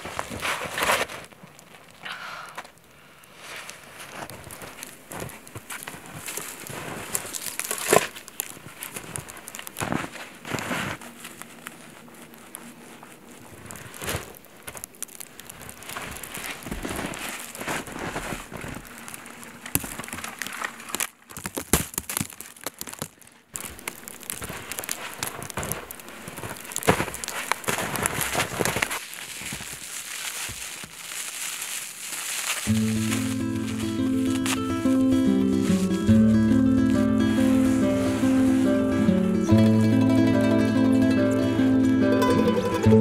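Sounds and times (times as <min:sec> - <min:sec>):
boots crunching through snow: 0:03.4 - 0:20.1, 0:23.6 - 0:39.8.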